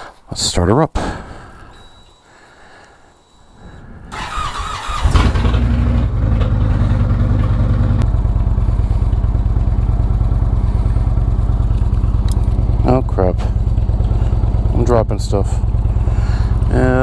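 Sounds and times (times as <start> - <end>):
starter motor cranking: 4.1 - 7.6
motorcycle engine idling: 4.2 - 17.0.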